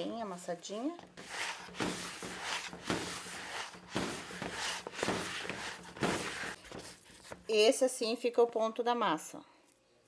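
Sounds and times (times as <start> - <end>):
hands kneading dough: 0.8 - 7.6.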